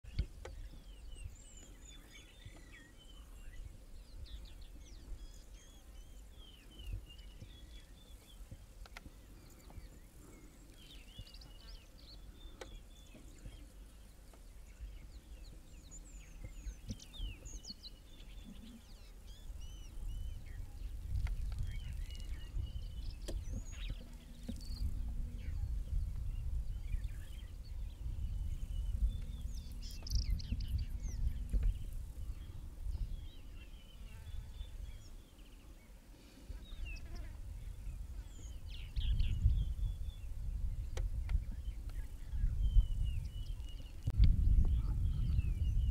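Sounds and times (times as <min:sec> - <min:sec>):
birds chirping and trilling: 0:00.1 - 0:45.9
low rumble: 0:21.6 - 0:33.6.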